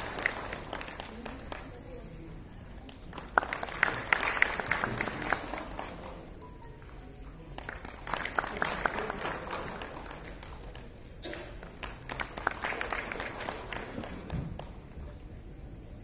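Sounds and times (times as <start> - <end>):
audience applauding: 0.0 - 1.8, 2.9 - 6.3, 7.6 - 11.0, 11.6 - 14.9.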